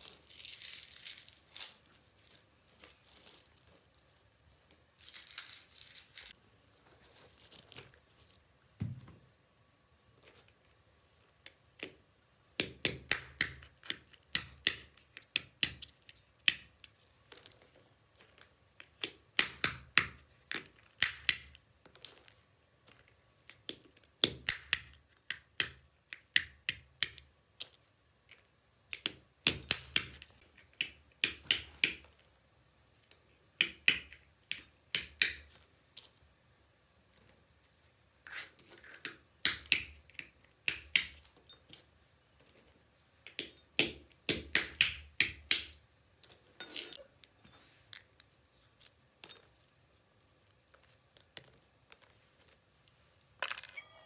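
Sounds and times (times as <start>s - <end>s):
stone cracking walnut shells: 23.7s - 25.8s.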